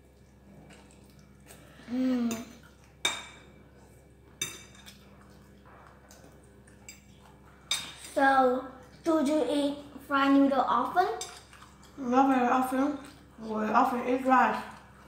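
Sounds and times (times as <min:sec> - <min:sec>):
child humming: 0:01.8 - 0:02.6
forks clinking on ceramic plates: 0:04.4 - 0:05.0.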